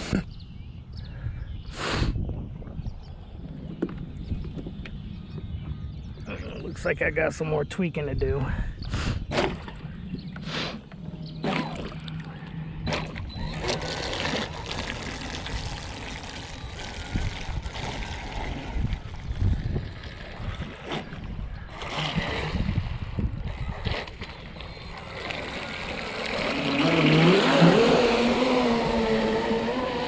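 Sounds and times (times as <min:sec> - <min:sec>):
gusty low rumble: 0:00.0 - 0:13.6, 0:14.9 - 0:25.2
water splashing and trickling: 0:11.4 - 0:30.0.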